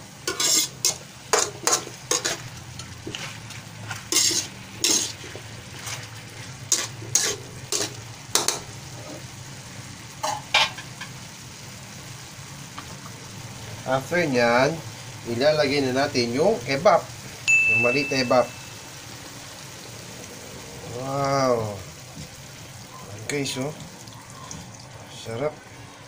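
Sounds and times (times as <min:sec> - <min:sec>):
spatula scraping a wok: 0:00.2 - 0:09.3.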